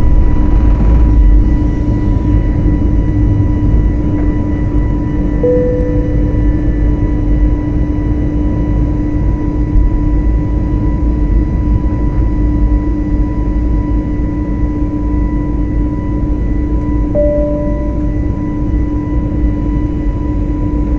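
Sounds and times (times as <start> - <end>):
steady hum: 0.0 - 9.8, 17.0 - 19.0
airliner engine and air rumble: 0.0 - 20.9
short faint tones: 5.4 - 6.7, 17.2 - 18.3.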